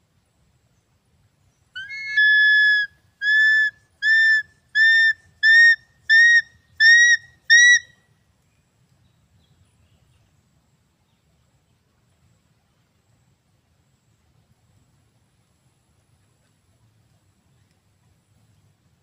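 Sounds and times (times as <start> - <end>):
eagle calling: 1.8 - 8.0.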